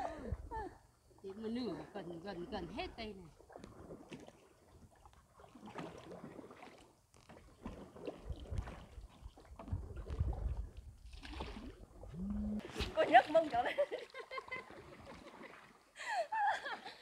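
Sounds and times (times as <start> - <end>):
water from paddled raft: 0.0 - 17.0
wind rumbling on microphone: 8.1 - 13.0.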